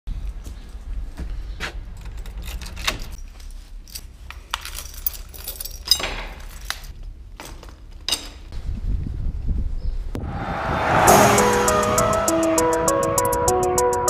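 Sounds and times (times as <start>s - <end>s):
chain lock links clinking: 1.9s - 8.5s
keys jangling: 1.9s - 8.5s.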